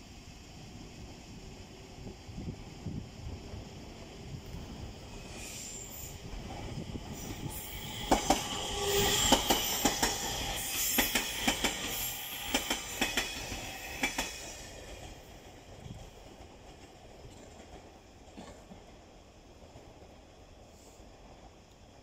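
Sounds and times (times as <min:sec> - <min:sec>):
train running rumble and hiss: 0:00.0 - 0:22.0
train wheels clacking over rail joints: 0:07.2 - 0:19.0.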